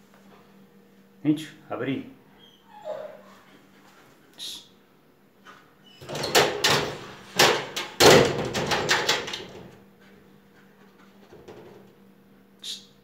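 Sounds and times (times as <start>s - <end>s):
glass door rattling and banging: 6.0s - 9.8s.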